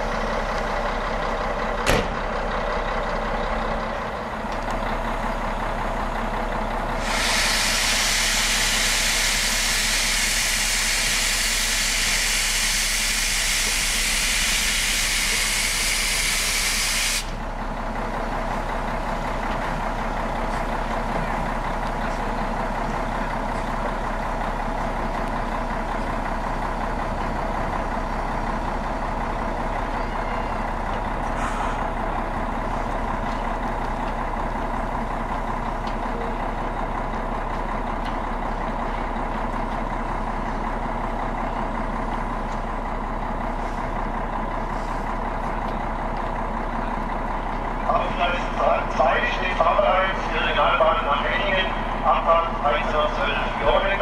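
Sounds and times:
steady locomotive hum: 0:00.0 - 0:54.0
loud steam hiss: 0:07.0 - 0:17.4.

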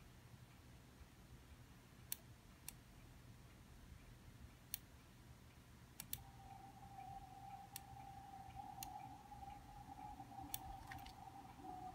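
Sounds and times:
faint steady tone: 0:00.0 - 0:11.9
computer mouse clicking: 0:06.0 - 0:06.3.

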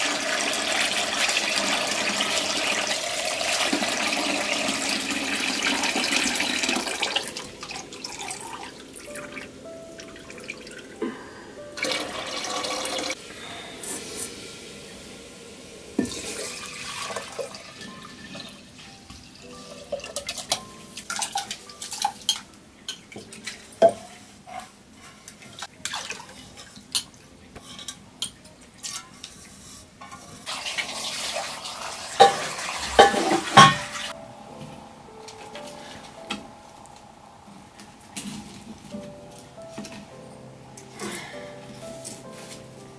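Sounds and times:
water pouring: 0:00.0 - 0:11.0, 0:11.8 - 0:13.2, 0:15.9 - 0:22.4, 0:25.5 - 0:27.1, 0:30.4 - 0:34.2
metal pots clinking: 0:15.9 - 0:24.7, 0:25.7 - 0:31.4, 0:32.1 - 0:36.5.

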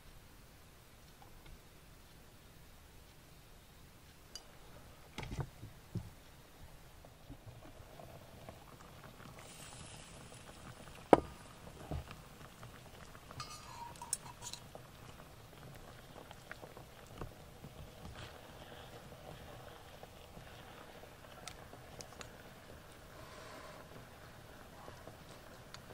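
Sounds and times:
porridge simmering: 0:00.0 - 0:25.9
metal spoon clinking on pan: 0:13.4 - 0:14.6.

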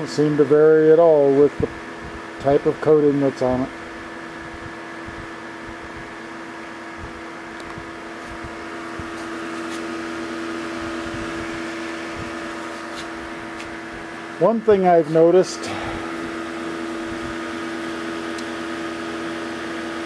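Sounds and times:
electric cooling fan running: 0:00.0 - 0:20.0.

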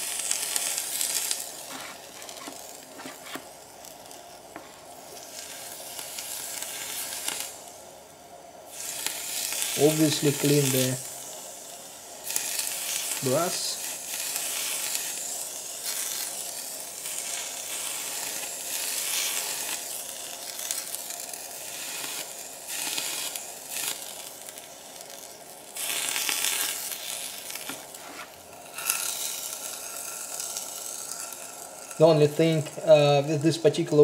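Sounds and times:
brush sizzling against metal: 0:00.5 - 0:03.5, 0:25.8 - 0:33.4.

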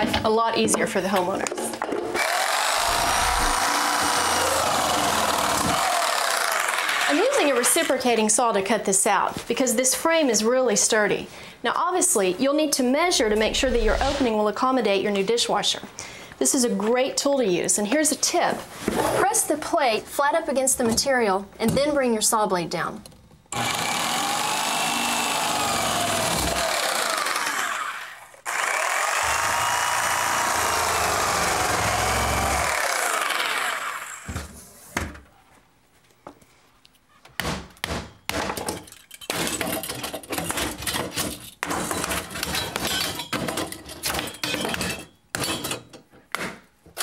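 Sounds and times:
reciprocating saw cutting wood: 0:02.2 - 0:07.5, 0:23.6 - 0:34.3
sharp knocks of hammering: 0:37.4 - 0:38.6.

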